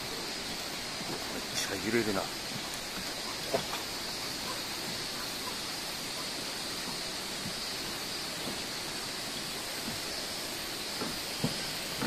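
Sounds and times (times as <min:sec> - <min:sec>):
water rushing: 0:00.0 - 0:12.0
footsteps on wooden deck: 0:02.4 - 0:03.9, 0:06.4 - 0:08.9, 0:09.7 - 0:10.3, 0:10.9 - 0:12.0.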